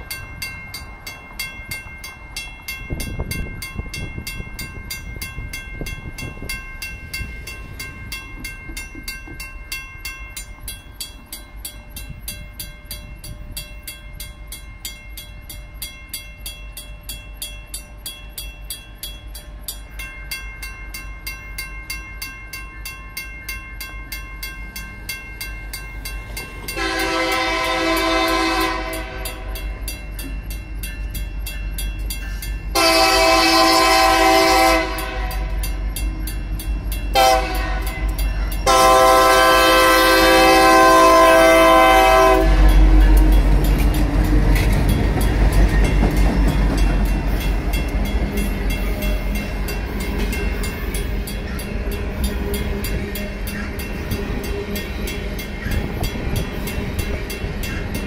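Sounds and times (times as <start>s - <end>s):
railroad crossing bell ringing: 0.0s - 58.0s
locomotive horn blast: 26.8s - 29.6s, 32.7s - 35.6s, 37.1s - 43.4s.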